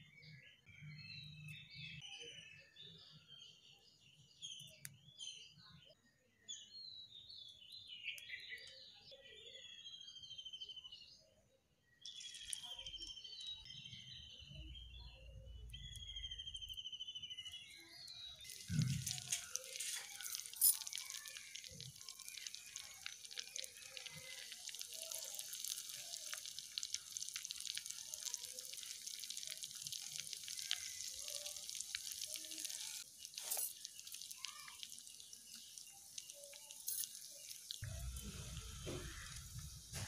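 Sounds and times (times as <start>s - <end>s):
fish sizzling in hot oil: 12.1s - 13.0s, 18.4s - 40.0s.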